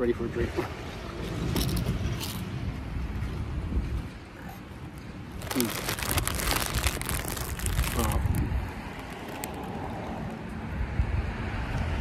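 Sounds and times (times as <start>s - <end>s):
low background rumble: 5.2s - 10.4s
plastic chip packet crinkling: 5.4s - 9.8s.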